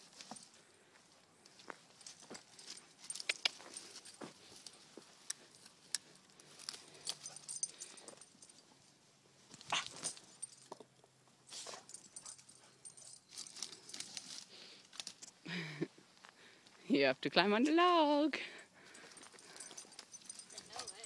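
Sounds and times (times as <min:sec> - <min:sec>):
leaves and twigs crackling: 0:13.3 - 0:15.4.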